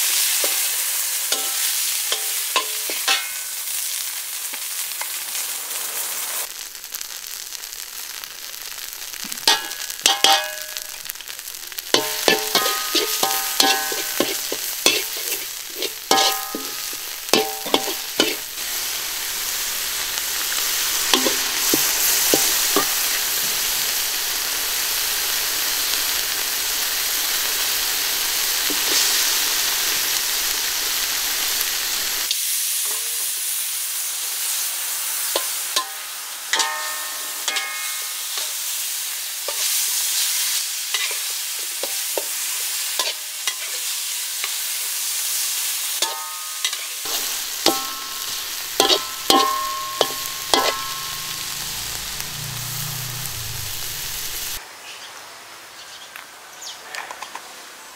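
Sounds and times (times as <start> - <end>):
food sizzling in a wok: 0.0 - 56.7
metal spatula scraping a pan: 1.3 - 3.5, 9.4 - 11.0, 11.8 - 19.0, 20.5 - 23.2, 35.4 - 38.6, 40.9 - 42.3, 43.0 - 43.9, 46.0 - 54.6.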